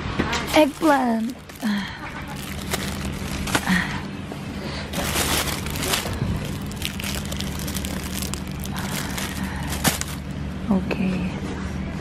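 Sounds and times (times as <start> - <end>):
steady low hum: 0.0 - 12.0
plastic bags crinkling: 0.4 - 4.0, 4.9 - 10.6.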